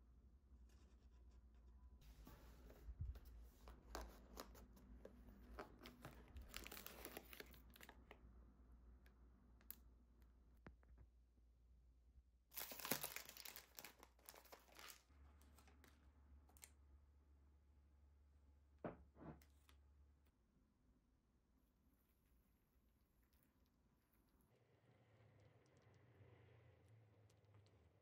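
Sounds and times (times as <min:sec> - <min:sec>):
plastic wrapper crinkling: 0:05.6 - 0:08.2, 0:12.5 - 0:16.0
plastic wrapper tearing: 0:05.8 - 0:08.2, 0:12.5 - 0:15.7.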